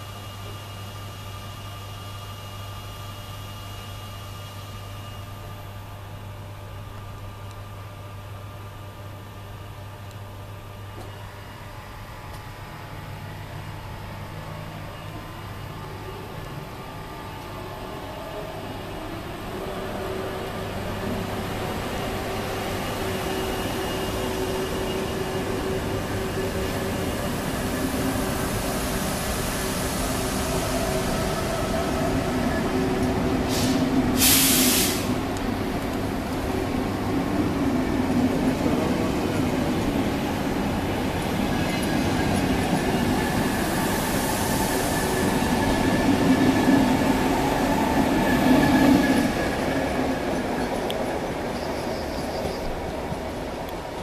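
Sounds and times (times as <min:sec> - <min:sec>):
train wheels rolling: 0:18.8 - 0:54.0
short loud hiss: 0:33.5 - 0:35.2.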